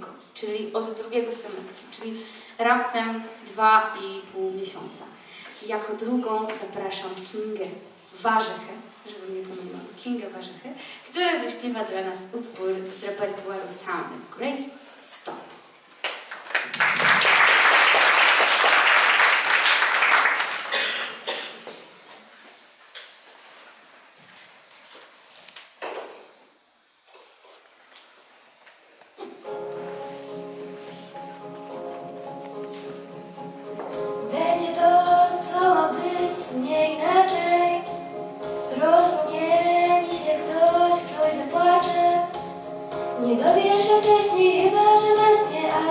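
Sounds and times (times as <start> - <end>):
audience applauding: 16.1 - 21.2
backing track of held chords: 29.5 - 45.9
girl singing into a microphone: 34.2 - 42.6, 43.2 - 45.9.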